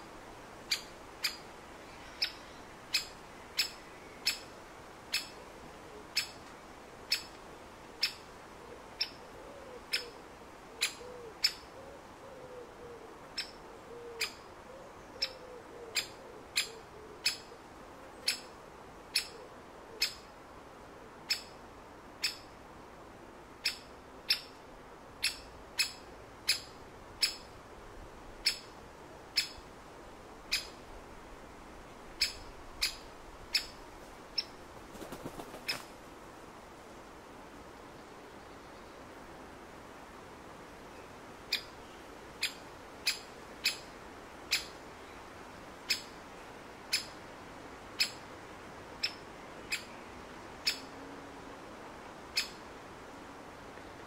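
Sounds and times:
woodpecker sharp kik call: 0.7s - 1.4s, 5.1s - 5.3s, 18.2s - 18.5s, 19.1s - 19.4s, 20.0s - 20.2s, 25.2s - 27.5s, 28.4s - 28.7s, 29.4s - 29.6s, 30.5s - 30.8s, 32.2s - 33.8s, 42.4s - 43.9s, 44.5s - 44.8s, 45.9s - 46.1s, 46.9s - 47.2s, 48.0s - 48.2s, 52.4s - 52.6s
faint low cooing bird: 5.1s - 6.4s, 8.0s - 20.4s.

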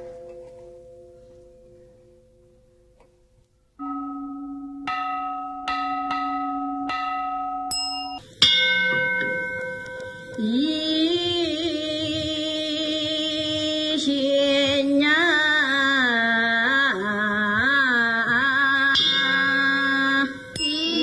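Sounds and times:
metal bell ringing: 3.8s - 10.6s, 18.9s - 21.0s
woman chanting: 10.4s - 21.0s.

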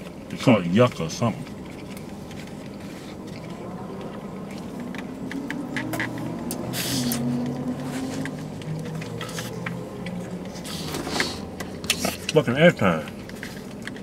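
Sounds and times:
low hum inside a car: 0.0s - 14.0s
rustle of food containers: 0.0s - 14.0s.

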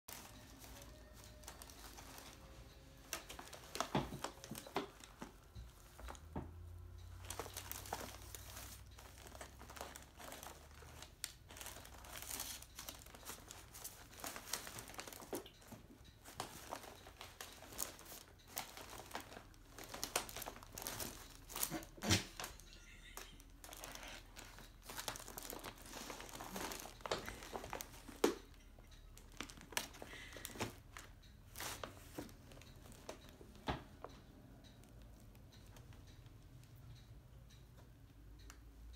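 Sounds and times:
paper receipts rustling: 0.1s - 33.4s
plastic folder rattling: 23.8s - 28.3s.

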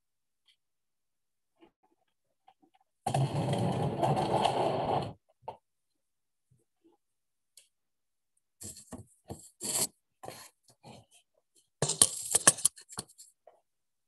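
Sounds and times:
knocks and scrapes: 3.1s - 5.2s, 8.6s - 11.2s
plastic tray scraping on table: 3.1s - 5.2s.

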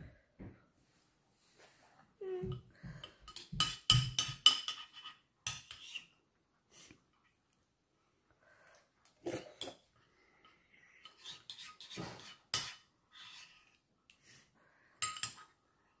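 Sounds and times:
spoon scraping a ceramic bowl: 3.3s - 6.2s, 11.0s - 13.8s.

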